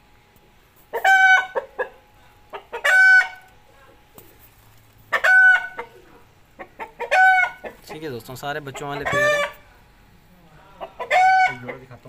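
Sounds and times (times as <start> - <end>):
chicken clucking and squawking: 0.9 - 3.5, 5.1 - 9.7, 10.7 - 12.0.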